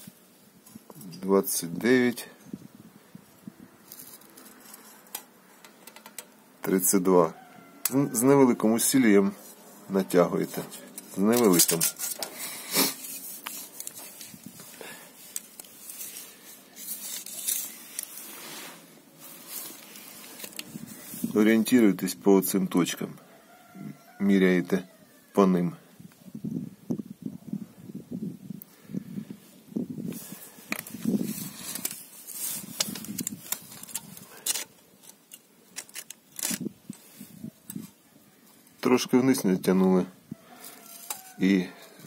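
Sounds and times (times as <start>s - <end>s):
rustling of handling: 3.3s - 6.4s, 7.3s - 22.9s, 30.0s - 42.0s
faint rustling and light clicks: 30.6s - 38.8s.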